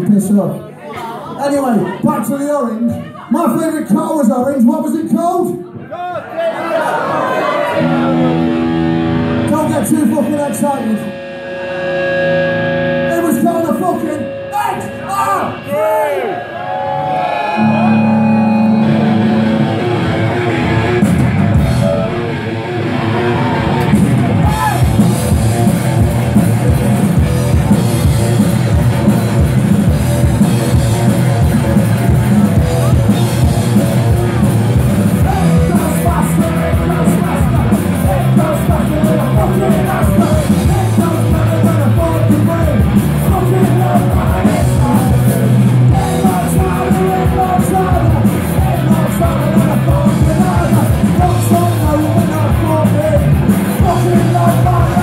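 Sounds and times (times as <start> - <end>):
punk rock band playing: 7.4 - 55.0
held guitar chord ringing: 7.8 - 34.8
person singing lead vocal: 35.2 - 55.0.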